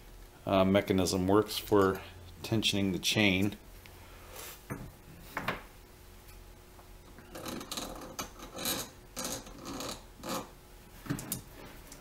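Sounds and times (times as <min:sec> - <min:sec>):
chain scraping on wooden bench: 0:07.3 - 0:10.5.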